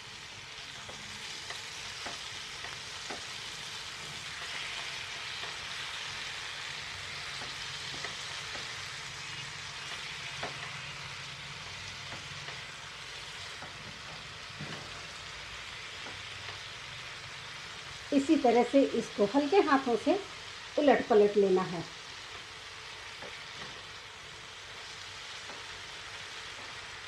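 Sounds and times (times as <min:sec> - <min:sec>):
vegetables sizzling in hot oil: 0:00.0 - 0:27.0
spatula clicking against pan: 0:00.8 - 0:03.5, 0:07.3 - 0:08.8.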